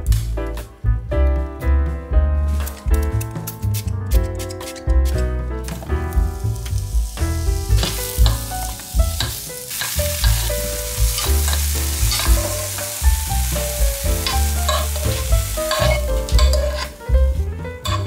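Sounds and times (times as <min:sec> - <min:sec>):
mushrooms sizzling in a pan: 0:06.2 - 0:18.0
metal spoon scraping a pan: 0:11.2 - 0:12.8, 0:14.2 - 0:17.0.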